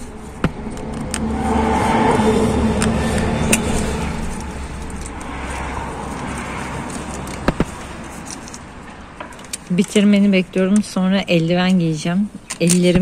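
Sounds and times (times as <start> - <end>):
motor vehicle droning: 0.0 - 9.2
clicks of wires and tool: 0.4 - 1.3, 2.7 - 10.0.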